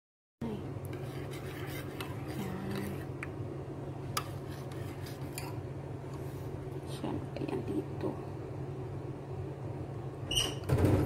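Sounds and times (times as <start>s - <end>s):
low background hum: 0.4s - 11.0s.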